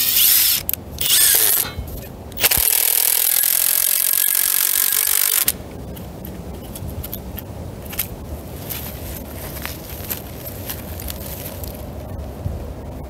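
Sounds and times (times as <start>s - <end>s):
cordless drill driving screw into wood: 0.0s - 1.7s, 2.4s - 5.5s.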